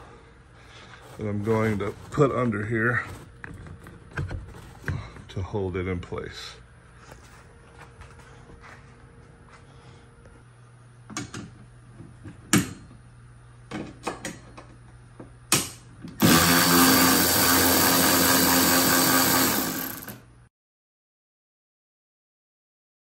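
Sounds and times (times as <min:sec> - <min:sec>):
cordless ratchet running: 0:16.2 - 0:20.2.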